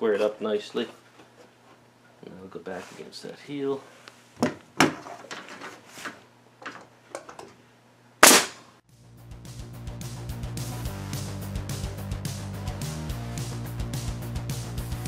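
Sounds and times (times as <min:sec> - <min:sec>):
nail gun shots into wood: 0:08.2 - 0:08.6.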